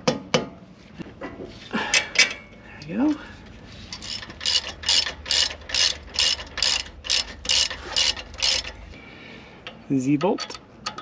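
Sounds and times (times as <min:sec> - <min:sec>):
socket ratchet clicking: 0:04.0 - 0:08.8.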